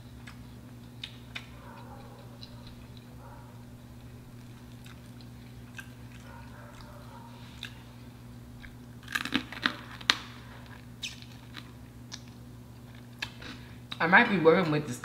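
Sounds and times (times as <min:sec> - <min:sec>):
teeth crunching crispy batter: 0:08.6 - 0:13.6.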